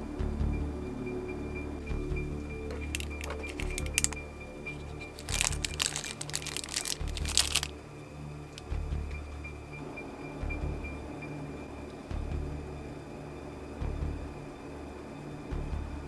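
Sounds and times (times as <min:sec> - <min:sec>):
background music with bass: 0:00.0 - 0:16.0
plastic bag crinkling: 0:02.7 - 0:07.8.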